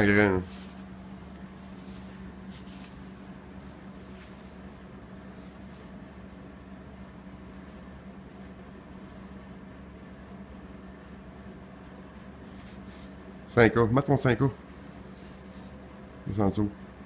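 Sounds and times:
steady low hum: 0.0s - 17.0s
marker pen scratching on fabric: 1.4s - 8.0s, 8.7s - 13.3s.

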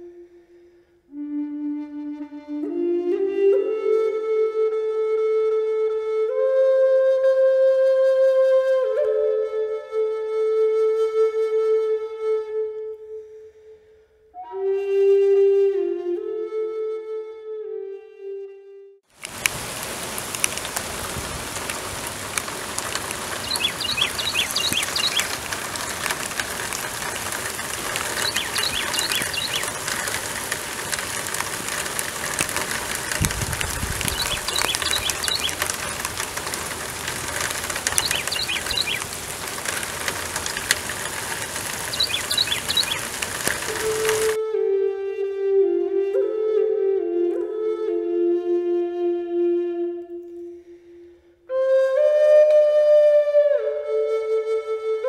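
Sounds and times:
steady rain falling: 19.1s - 44.4s
bird chirping: 22.8s - 31.3s, 33.8s - 39.8s, 40.5s - 44.4s.

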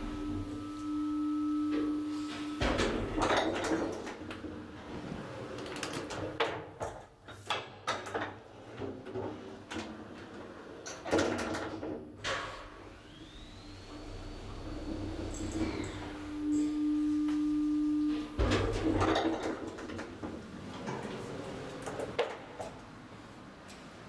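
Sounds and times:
elevator hum: 0.0s - 6.3s, 13.0s - 22.2s.

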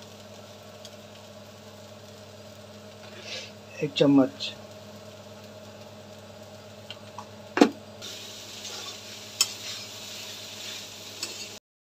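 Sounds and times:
low sizzle: 0.0s - 11.6s
spatula scraping a pan: 8.6s - 11.6s.

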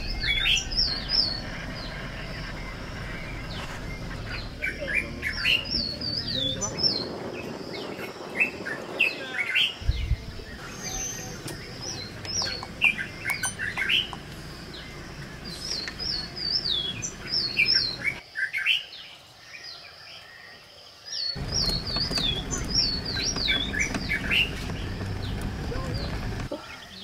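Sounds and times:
low vehicle rumble: 0.0s - 7.9s, 9.8s - 18.2s, 21.4s - 26.6s
songbirds chirping: 0.0s - 27.0s.

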